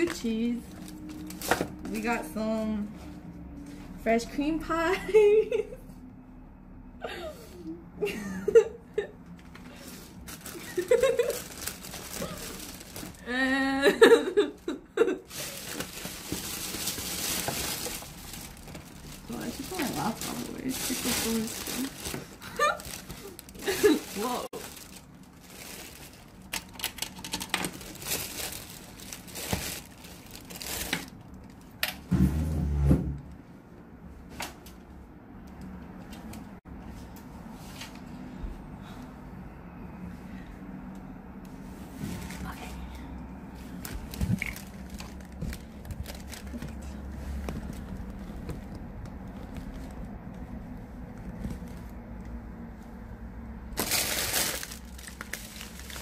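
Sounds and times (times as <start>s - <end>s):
plastic packets crinkling: 0.0s - 2.1s, 9.7s - 13.4s, 15.2s - 31.8s, 43.7s - 50.1s, 53.6s - 56.0s
plastic bag rustling: 0.0s - 3.5s, 9.5s - 31.8s, 43.5s - 52.2s, 53.5s - 56.0s.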